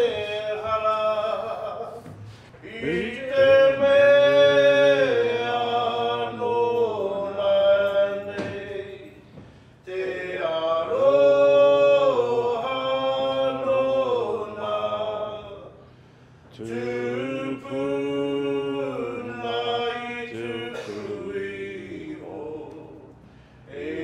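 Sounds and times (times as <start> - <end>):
man chanting: 2.6 - 9.0.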